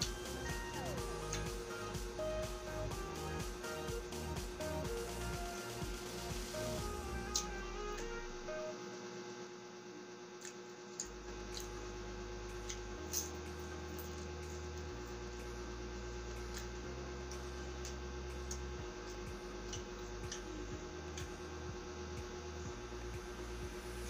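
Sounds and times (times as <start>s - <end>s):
electrical hum: 0.0s - 24.0s
chewing with crunches: 10.4s - 11.8s.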